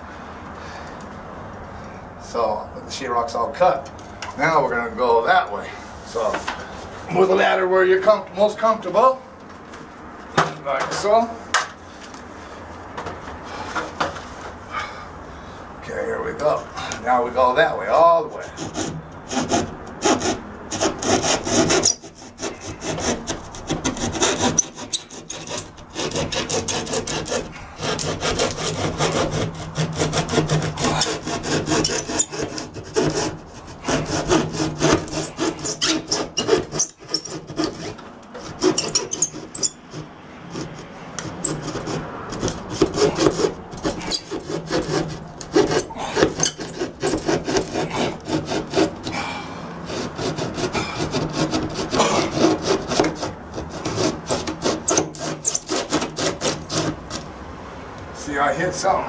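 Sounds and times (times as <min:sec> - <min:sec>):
hand saw cutting drywall: 0:16.4 - 0:57.3.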